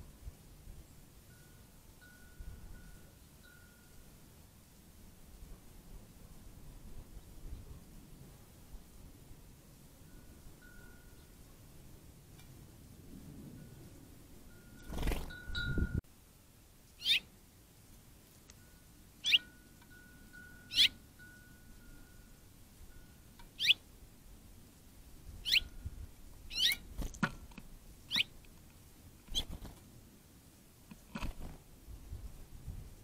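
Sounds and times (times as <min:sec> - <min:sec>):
songbirds sharp call notes: 0:16.8 - 0:17.4, 0:18.2 - 0:23.9, 0:25.3 - 0:27.1, 0:28.0 - 0:29.6.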